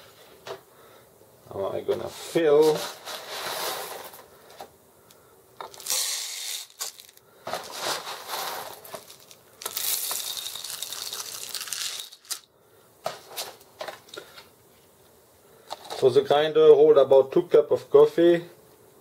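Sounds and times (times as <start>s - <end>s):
coffee beans pouring rattle: 2.7s - 4.2s, 5.6s - 12.4s.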